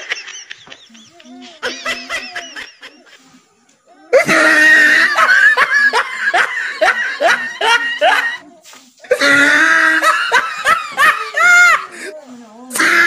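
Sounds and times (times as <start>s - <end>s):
loud shrill laughter: 4.1s - 8.4s, 9.1s - 11.9s, 12.7s - 13.0s.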